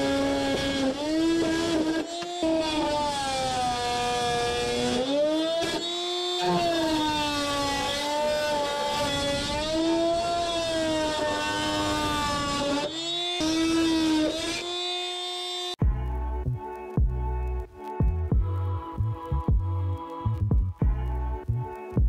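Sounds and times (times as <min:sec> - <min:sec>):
cutting wheel grinding metal: 0:00.0 - 0:15.8
rotary tool motor whine: 0:00.0 - 0:15.8.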